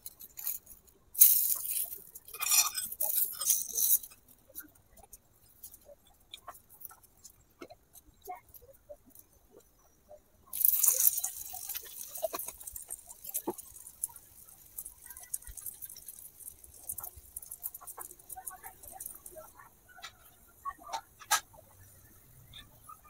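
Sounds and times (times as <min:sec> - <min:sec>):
crackles: 0:00.0 - 0:23.0
oil sizzling in a pan: 0:10.5 - 0:19.6.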